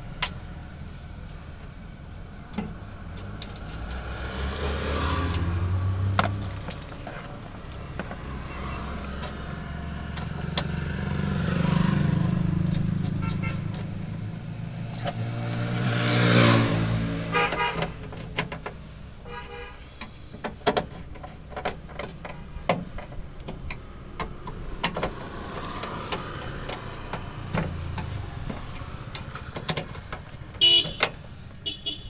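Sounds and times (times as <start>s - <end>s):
vehicle passing: 3.0s - 7.1s, 7.7s - 17.8s
car horn toots: 13.2s - 13.7s, 17.3s - 18.0s, 19.2s - 19.8s, 30.6s - 32.0s.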